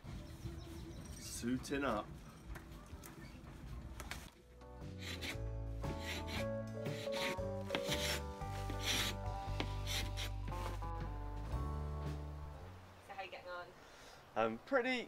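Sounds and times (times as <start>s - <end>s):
background music: 4.3s - 13.2s
paint scraper rasping: 5.0s - 10.3s.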